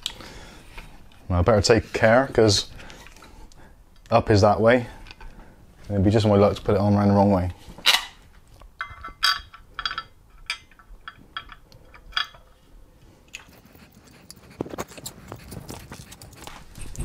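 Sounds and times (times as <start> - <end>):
metal bracket clinking: 8.8 - 12.5.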